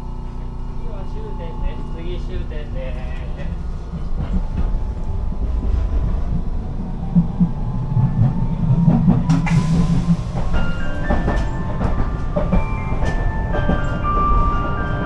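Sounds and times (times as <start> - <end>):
tram low rumble: 0.0 - 15.0
wheel clacks over rails: 7.1 - 15.0.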